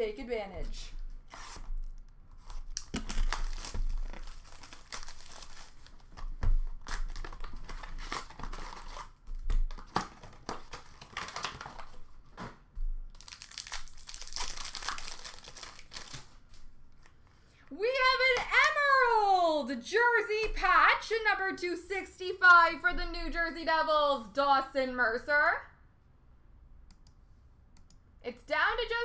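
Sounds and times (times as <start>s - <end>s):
wrappers crinkling and tearing: 1.3s - 12.1s, 13.1s - 16.6s.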